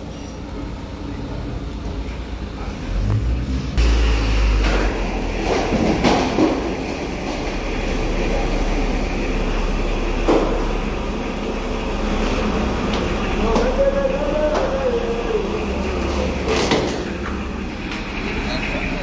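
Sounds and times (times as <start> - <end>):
forklift diesel engine running: 0.0 - 19.0.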